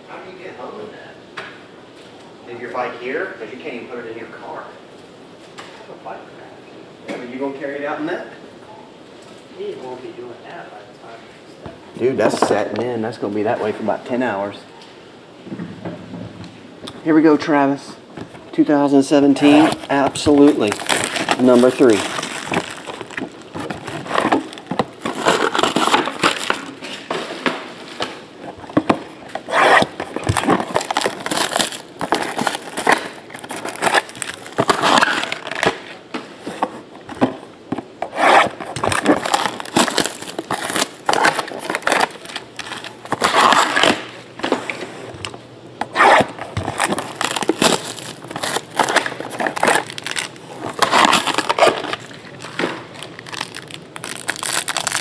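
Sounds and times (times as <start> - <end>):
plastic wrap crinkling: 19.2 - 36.9, 37.8 - 44.3, 45.8 - 55.0
cardboard rubbing and scraping: 19.4 - 27.4, 28.5 - 35.7, 38.0 - 45.1, 45.9 - 52.1.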